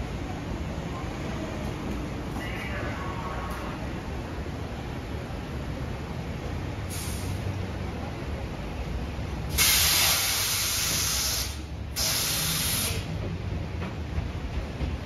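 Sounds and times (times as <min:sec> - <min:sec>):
compressed air hissing: 0:06.9 - 0:07.4, 0:09.5 - 0:13.1.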